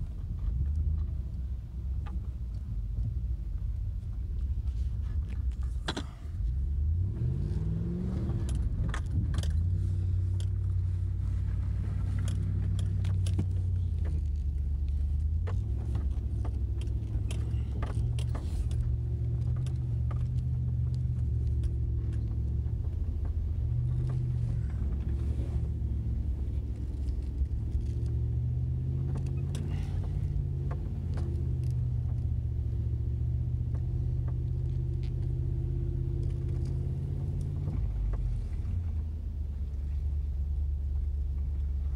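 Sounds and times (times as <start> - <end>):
truck engine and tyres droning: 0.0 - 41.9
clicks and rattles: 8.3 - 10.8, 12.0 - 28.3.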